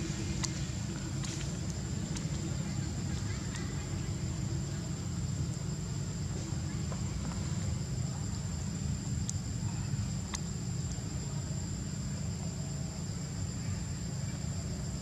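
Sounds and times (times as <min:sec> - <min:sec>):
high insect drone: 0:00.0 - 0:15.0
faint ticks: 0:00.1 - 0:04.1, 0:09.2 - 0:09.5, 0:10.2 - 0:11.0.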